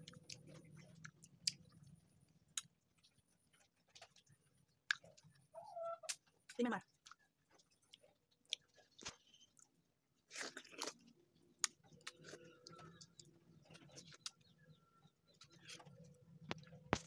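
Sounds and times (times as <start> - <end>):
person crunching and chewing: 0.0 - 5.5, 7.0 - 14.6.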